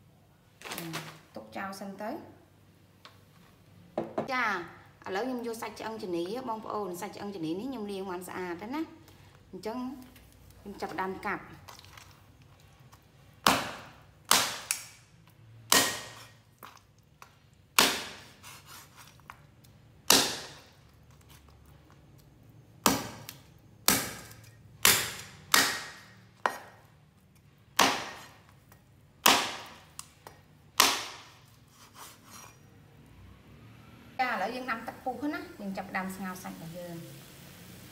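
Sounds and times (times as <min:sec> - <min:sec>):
cleaver chopping ribs on board: 0:20.1 - 0:20.6, 0:22.8 - 0:26.8.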